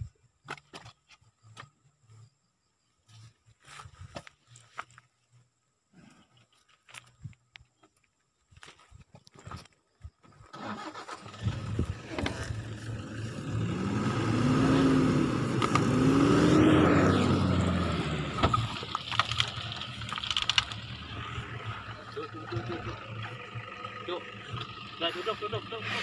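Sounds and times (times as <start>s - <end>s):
truck engine starting and revving: 10.5s - 26.0s.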